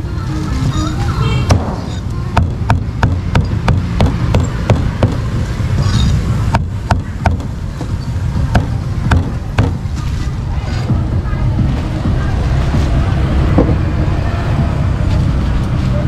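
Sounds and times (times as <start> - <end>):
steady low rumble: 1.4 - 16.0
cleaver chopping on wooden block: 2.4 - 5.3, 6.5 - 7.9, 8.5 - 9.8.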